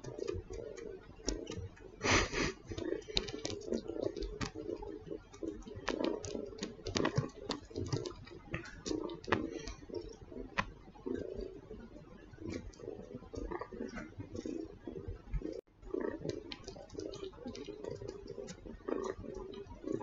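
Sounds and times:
kitten sucking clicks and smacks: 0:00.0 - 0:11.4, 0:15.4 - 0:20.0.

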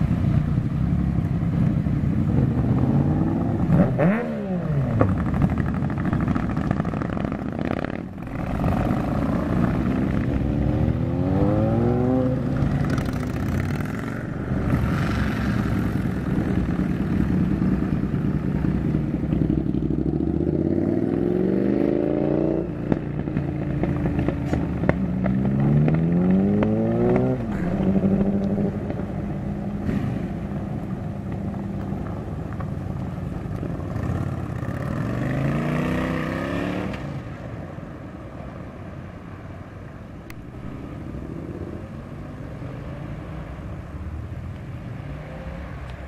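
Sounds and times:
motorcycle engines accelerating: 0:00.0 - 0:37.5.

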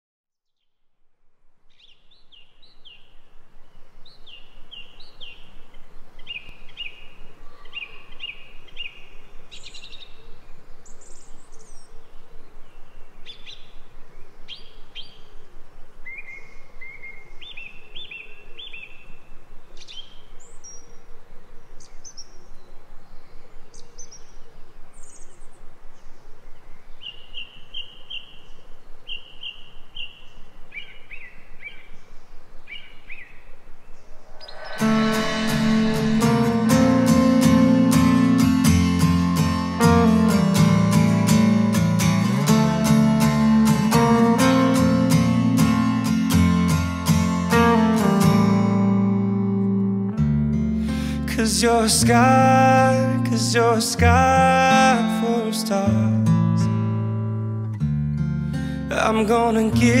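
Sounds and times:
songbirds chirping: 0:01.7 - 0:36.2.

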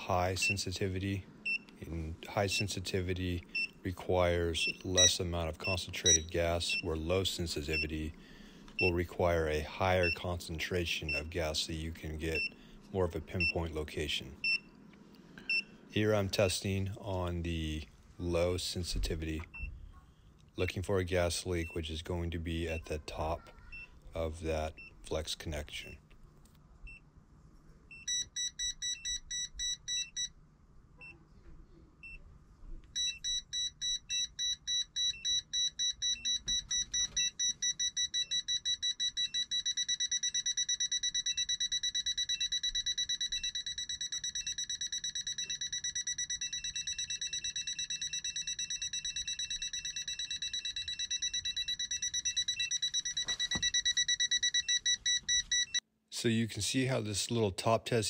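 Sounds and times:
gas detector beeping: 0:04.6 - 0:07.0, 0:07.7 - 0:08.1, 0:08.8 - 0:09.0, 0:10.0 - 0:10.3, 0:27.9 - 0:30.4, 0:33.0 - 0:55.8.

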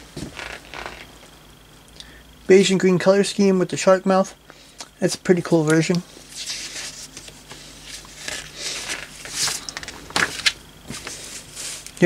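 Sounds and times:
paper rustling and pages turning: 0:05.7 - 0:12.0.

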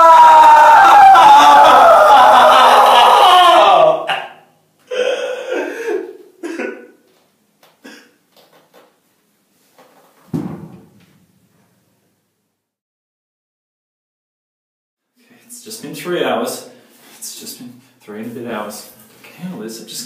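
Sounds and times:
man clearing his throat: 0:04.1 - 0:07.0, 0:07.8 - 0:08.2
man coughing: 0:04.2 - 0:07.0, 0:07.8 - 0:08.2.

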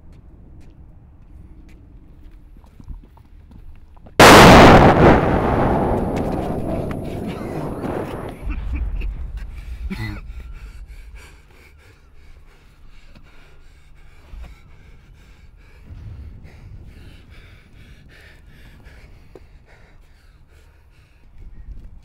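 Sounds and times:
low rumble: 0:04.2 - 0:20.6
man breathing hard and gasping: 0:09.4 - 0:21.8.

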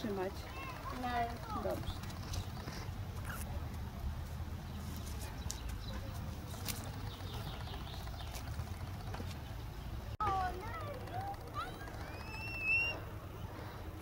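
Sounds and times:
faint bird chirps: 0:11.6 - 0:13.8.

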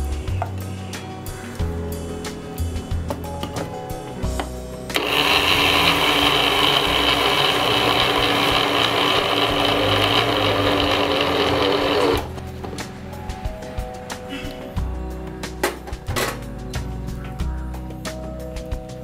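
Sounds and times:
mixer grinder motor running: 0:04.9 - 0:12.3.

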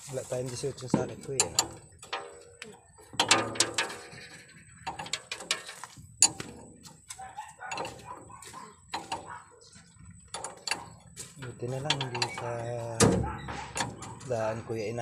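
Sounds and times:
wrench clinking on metal nut: 0:11.9 - 0:12.5.

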